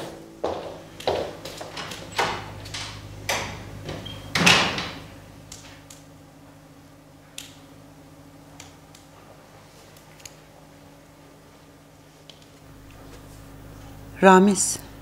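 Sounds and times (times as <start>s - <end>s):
wooden door closing: 1.0s - 5.2s.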